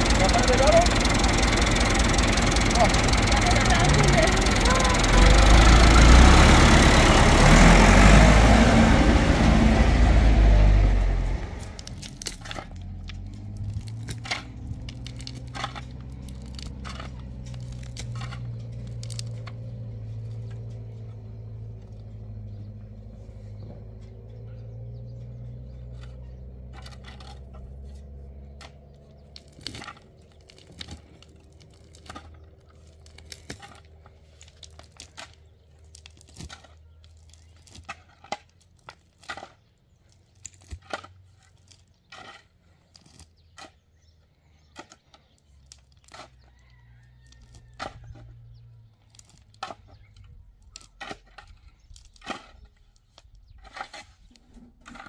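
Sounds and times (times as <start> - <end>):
gravel clinking: 0.0 - 55.0
shovel digging into stony soil: 49.2 - 55.0.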